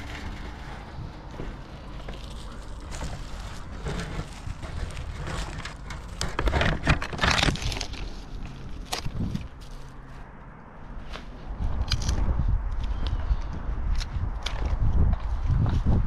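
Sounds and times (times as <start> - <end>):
rustling: 0.0 - 10.3
dry twigs crackling and snapping: 0.0 - 10.4, 11.1 - 15.3.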